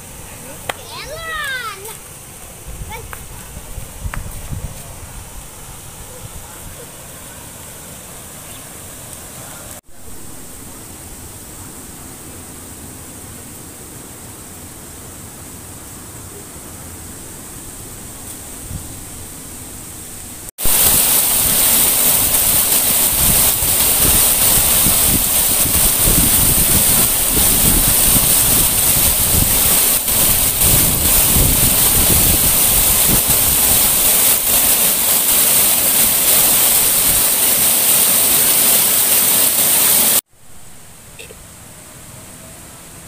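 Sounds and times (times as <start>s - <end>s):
water rushing over rock: 0.1s - 4.0s, 20.6s - 40.2s.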